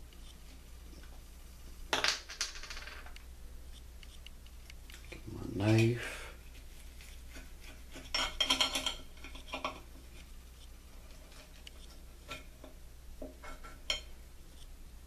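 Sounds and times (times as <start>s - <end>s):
knife and fork scraping a plate: 7.3s - 9.9s, 13.4s - 14.1s.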